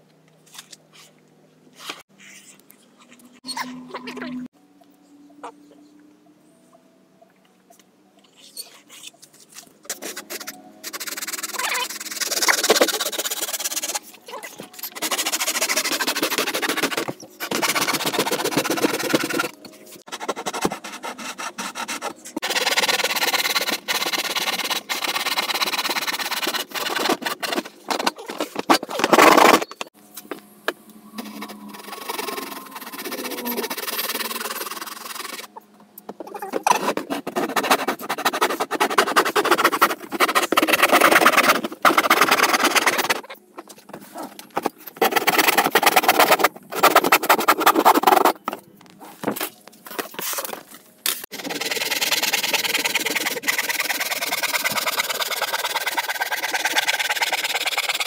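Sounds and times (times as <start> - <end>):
hand tool shaving wood edge: 14.8 - 29.6, 36.6 - 43.3, 44.6 - 48.4, 51.3 - 58.0.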